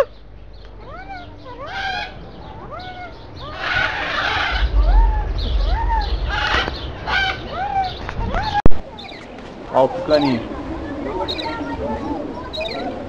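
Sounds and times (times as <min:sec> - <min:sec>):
macaws squawking: 0:00.8 - 0:08.6
low microphone rumble: 0:02.2 - 0:13.0.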